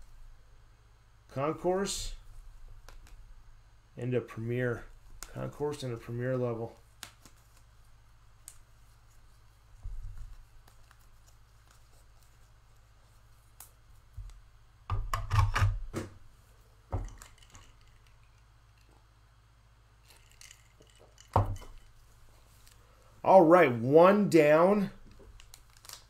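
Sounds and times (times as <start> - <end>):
cards being handled: 6.6 - 14.4, 25.0 - 26.0
plastic wrapping crinkling: 25.0 - 26.0.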